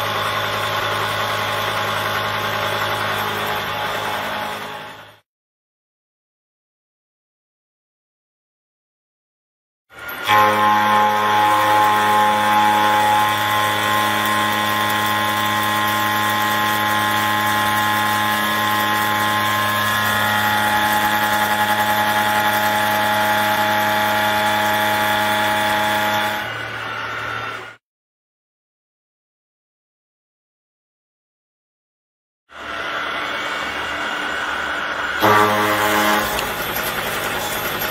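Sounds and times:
milling machine whine: 0:00.0 - 0:05.2, 0:10.0 - 0:27.8, 0:32.6 - 0:37.9
metal cutting noise: 0:10.0 - 0:27.8, 0:32.5 - 0:37.9.

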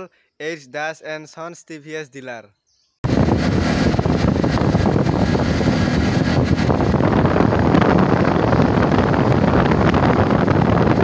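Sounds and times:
wind buffeting microphone: 0:03.0 - 0:11.0.

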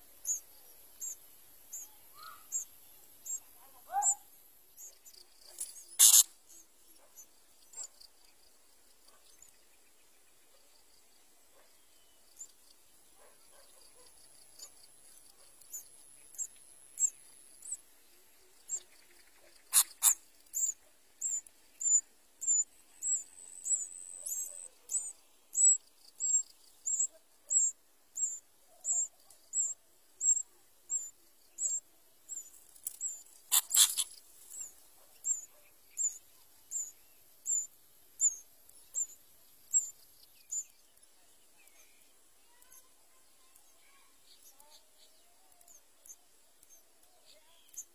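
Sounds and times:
nestlings begging calls: 0:00.2 - 0:06.6, 0:14.6 - 0:17.8, 0:19.6 - 0:40.7
harsh nestling call bursts: 0:01.0 - 0:04.2, 0:05.6 - 0:06.6, 0:16.4 - 0:17.8, 0:19.7 - 0:36.9, 0:37.5 - 0:38.4.

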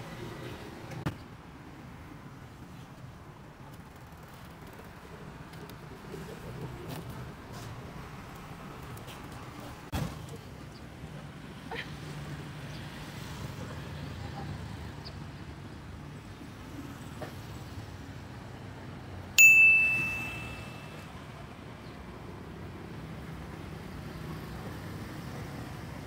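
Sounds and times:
street traffic hum: 0:00.0 - 0:26.0
loud metallic ding: 0:19.4 - 0:21.0.

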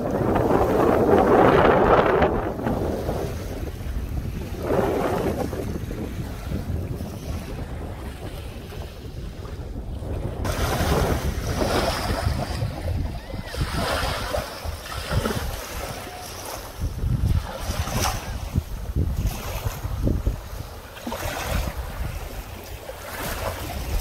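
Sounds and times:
wind rumble on microphone: 0:00.0 - 0:24.0
small waves washing over pebbles: 0:10.4 - 0:24.0.

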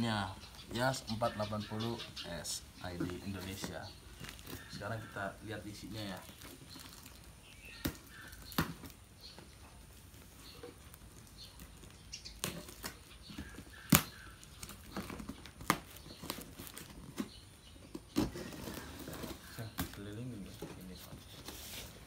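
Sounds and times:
packing tape pulled off cardboard: 0:10.2 - 0:20.2.

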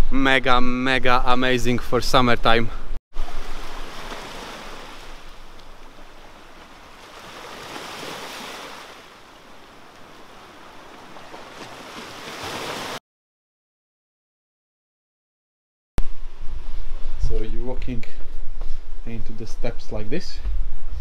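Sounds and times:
sea waves washing onto beach: 0:03.2 - 0:13.0.

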